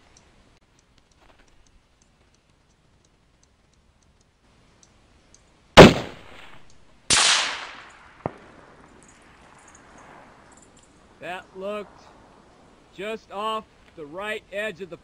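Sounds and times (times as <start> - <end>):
rifle shot: 5.8 - 10.5.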